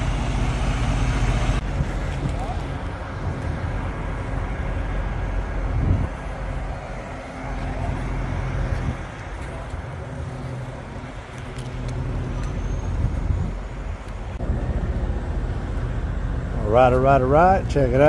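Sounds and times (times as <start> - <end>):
diesel truck engines idling: 0.0 - 18.0.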